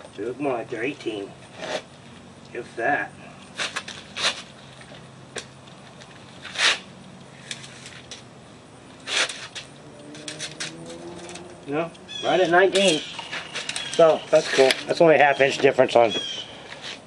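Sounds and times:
tape measure clicking: 9.0 - 11.5, 12.8 - 14.8.

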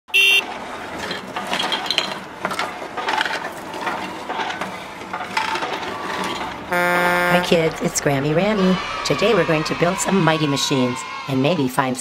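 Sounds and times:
brief loud tone: 0.1 - 0.5, 6.7 - 7.7.

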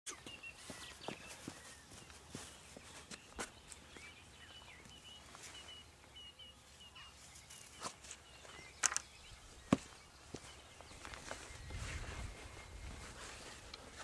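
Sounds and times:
sharp clicks: 8.8 - 9.1.

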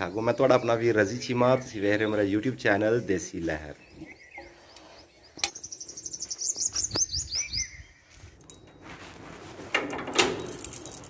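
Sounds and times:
padlock rattling and scraping: 9.5 - 11.0.

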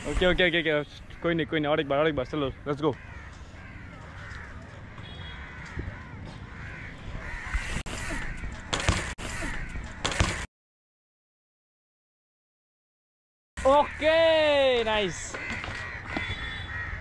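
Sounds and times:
crows cawing: 2.4 - 10.4, 13.6 - 17.0
sharp thumps and rattles: 7.9 - 10.5.

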